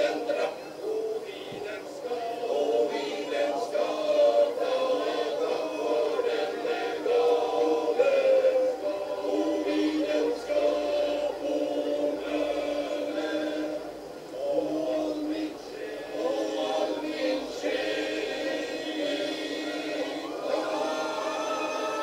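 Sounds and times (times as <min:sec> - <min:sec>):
men's choir singing: 0:00.0 - 0:22.0.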